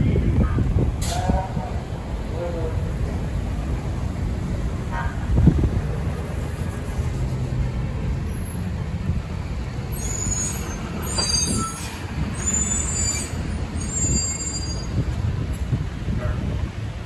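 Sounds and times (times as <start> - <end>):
street traffic rumble: 0.0 - 17.0
short high-pitched squeals: 9.9 - 15.0.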